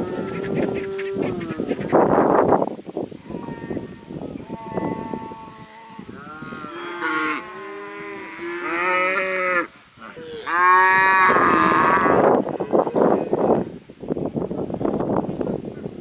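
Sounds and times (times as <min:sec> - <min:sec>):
cows mooing: 0:03.2 - 0:13.4.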